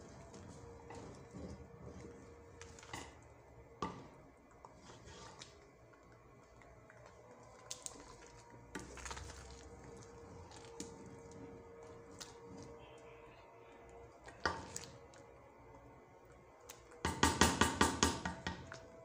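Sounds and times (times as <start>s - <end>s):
spoon mashing wet rice: 0.0s - 19.0s
spoon knocking against pot: 17.0s - 18.6s.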